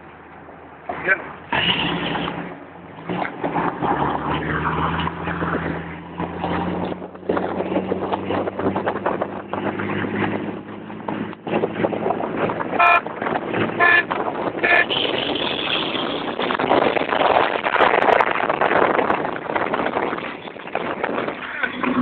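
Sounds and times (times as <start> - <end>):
wind and road noise: 0.0 - 22.0
car engine running: 5.4 - 22.0.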